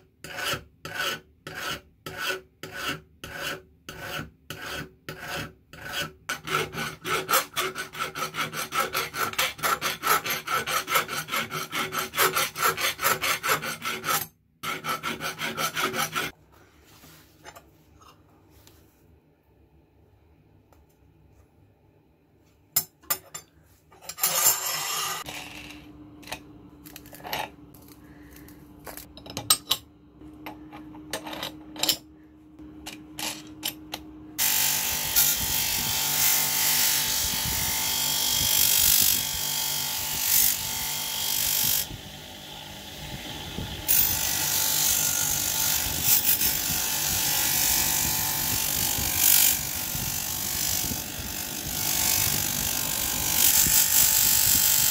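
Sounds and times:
bench grinder grinding metal: 0.2 - 16.4, 24.1 - 28.0, 32.8 - 54.9
metal parts clicking and knocking: 30.4 - 32.1.

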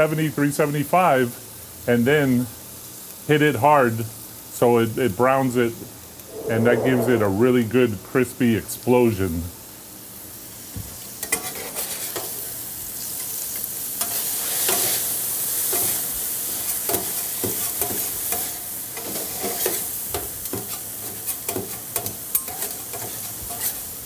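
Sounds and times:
chicken sizzling on griddle: 11.0 - 24.0.

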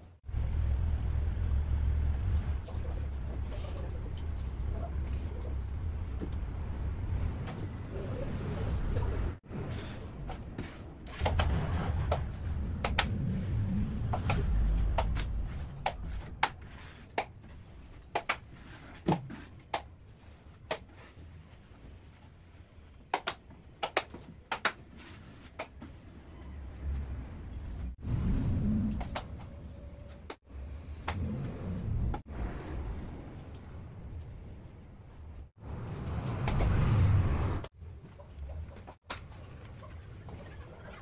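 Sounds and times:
low rumble: 0.0 - 10.3, 11.1 - 16.4, 26.8 - 29.9.

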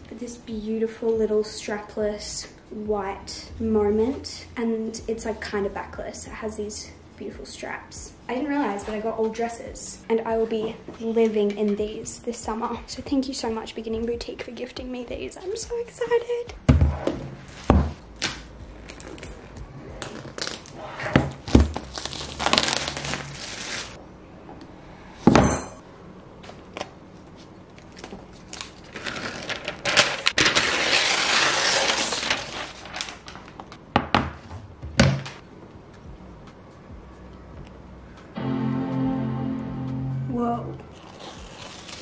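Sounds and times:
packaging crinkling and tearing: 18.2 - 24.0, 27.8 - 33.8, 40.9 - 42.0.

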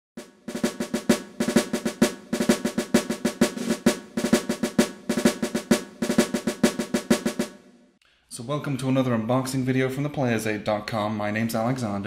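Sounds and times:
fast snare drumming with rolls: 0.2 - 7.7.

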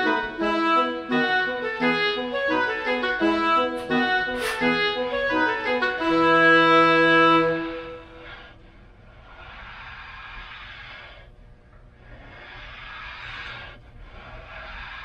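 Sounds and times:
background music melody: 0.0 - 8.4.

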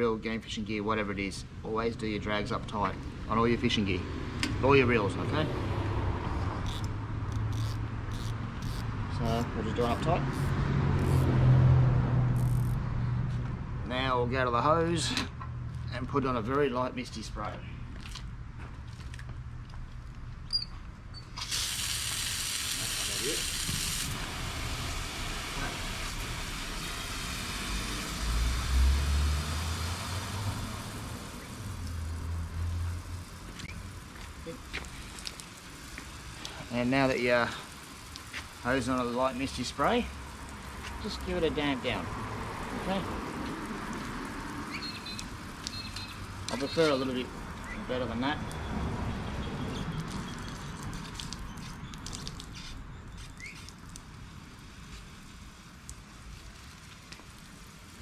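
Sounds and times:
hose nozzle clicks and rattles: 6.6 - 8.9
hose spray nozzle hissing: 6.6 - 8.9, 21.4 - 28.6
bird chirp: 44.7 - 47.0, 49.4 - 53.7.

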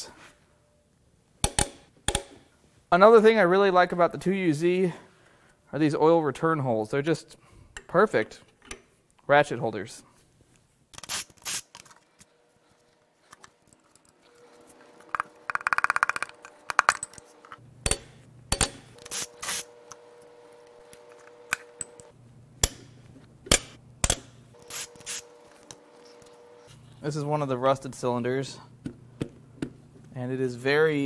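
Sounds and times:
socket ratchet clicking: 15.2 - 17.2.

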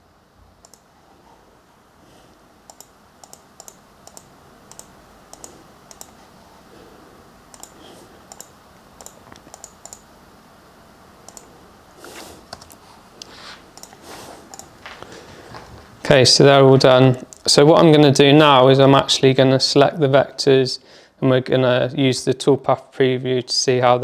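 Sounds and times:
faint room noise: 0.0 - 24.0
computer mouse clicking: 0.6 - 0.9, 2.7 - 6.2, 7.5 - 10.1, 11.3 - 11.5, 12.5 - 14.7.

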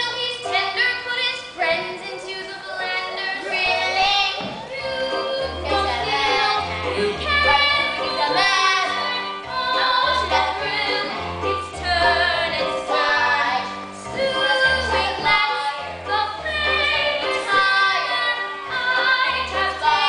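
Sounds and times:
young performers singing: 0.0 - 20.0
accompaniment with repeating bass line: 4.8 - 8.8.

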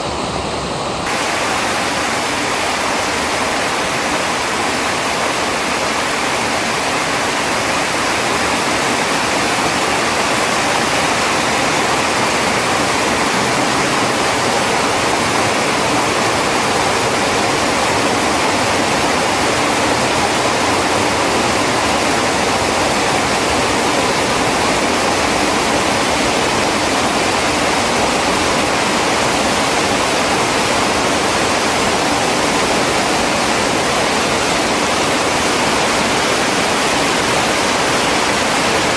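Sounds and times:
floodwater rushing over rocks: 0.0 - 38.9.

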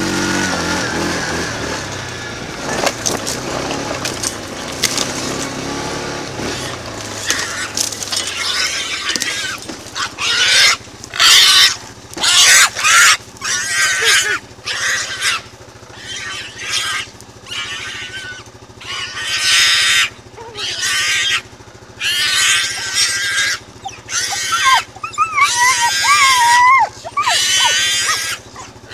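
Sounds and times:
pig squealing: 6.4 - 28.9.

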